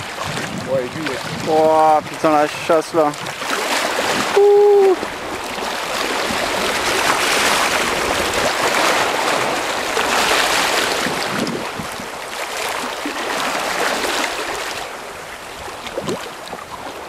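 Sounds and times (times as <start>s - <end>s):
sea water rushing: 0.0s - 17.0s
wind: 0.0s - 17.0s.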